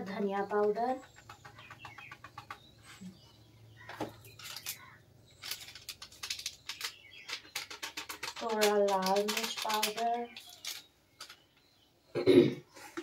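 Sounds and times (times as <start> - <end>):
plastic packets crinkling: 3.8 - 11.6.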